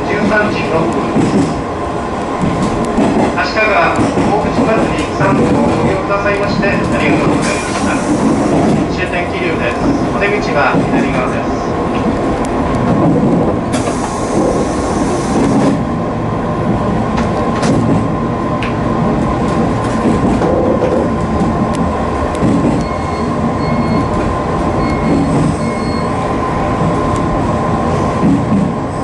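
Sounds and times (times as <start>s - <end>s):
train wheels on rails: 0.0s - 29.0s
air hiss: 7.4s - 8.7s, 13.7s - 15.6s
short beeps: 22.8s - 24.2s, 24.8s - 26.1s.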